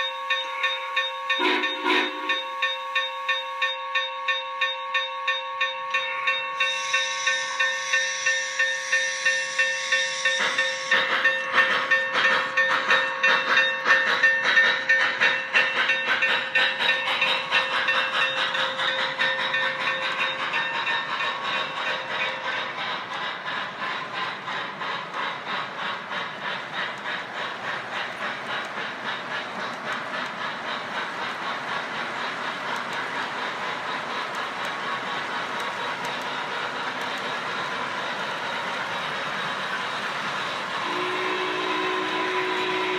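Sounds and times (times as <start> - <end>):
steam hissing: 0.0 - 3.8, 6.0 - 42.9
locomotive chuffing: 0.0 - 4.4, 6.0 - 42.9
train cars rolling on track: 0.0 - 42.9
steam whistle: 0.4 - 3.7, 6.1 - 11.8, 40.8 - 42.9.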